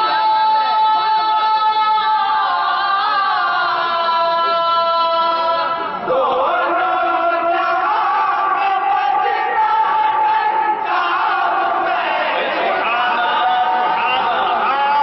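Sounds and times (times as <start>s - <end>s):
men singing together unaccompanied: 0.0s - 15.0s.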